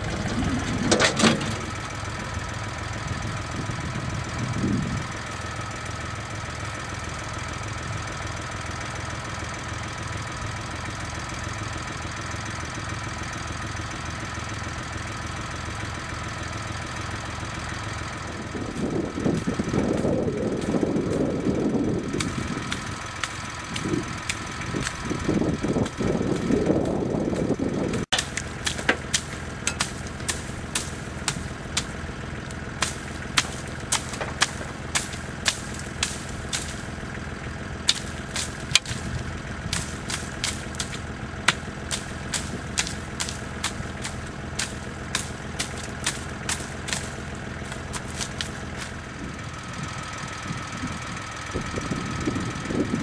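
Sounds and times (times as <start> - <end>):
diesel tractor idling: 0.0 - 53.0.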